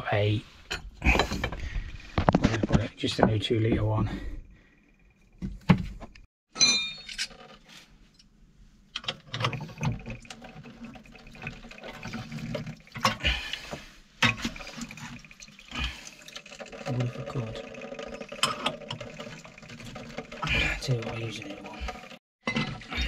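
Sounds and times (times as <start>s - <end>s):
metallic knocks and clinks: 6.5s - 7.4s
water trickling into sink: 9.6s - 13.4s, 14.2s - 22.2s.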